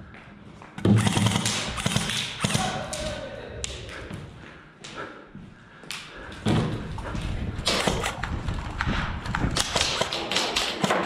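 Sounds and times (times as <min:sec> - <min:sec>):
footsteps on concrete: 0:00.0 - 0:00.8, 0:03.9 - 0:09.6.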